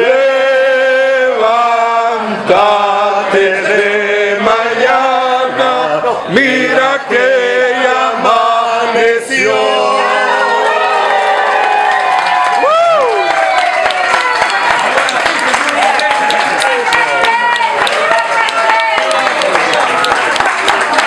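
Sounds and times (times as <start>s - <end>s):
group of people singing: 0.0s - 11.5s.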